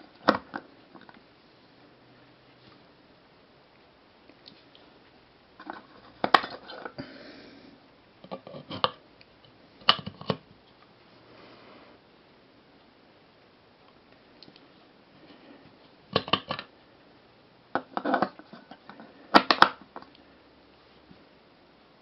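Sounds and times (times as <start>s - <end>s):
plastic clicks and clatter: 16.1s - 16.7s.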